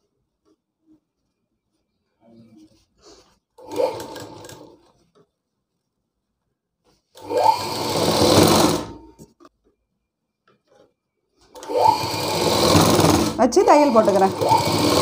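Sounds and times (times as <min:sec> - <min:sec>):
sewing machine stitching: 0:03.6 - 0:05.1, 0:07.2 - 0:09.2, 0:11.5 - 0:15.0.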